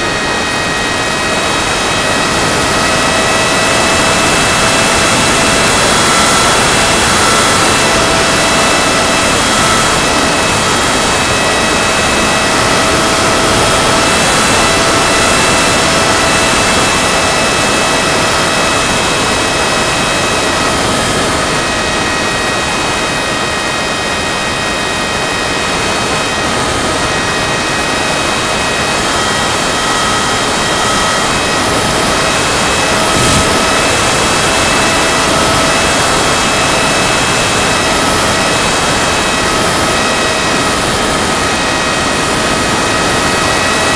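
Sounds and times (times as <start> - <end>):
model airplane motor whining: 0.0 - 43.9
wind rush on microphone: 0.0 - 43.9.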